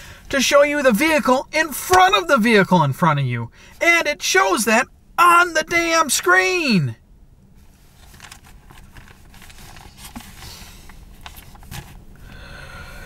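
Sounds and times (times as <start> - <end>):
paper sheets rustling: 8.0 - 10.6.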